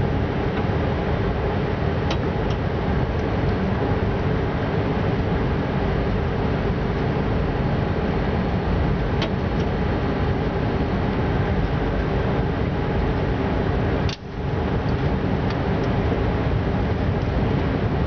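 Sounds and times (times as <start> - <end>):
train rumble and wheel-on-rail noise: 0.0 - 18.0.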